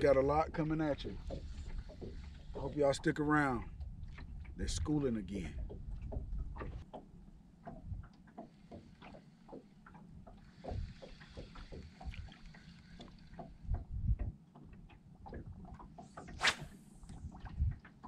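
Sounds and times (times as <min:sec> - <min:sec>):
waves lapping against boat hull: 0:00.0 - 0:18.0
low wind rumble: 0:13.6 - 0:14.4.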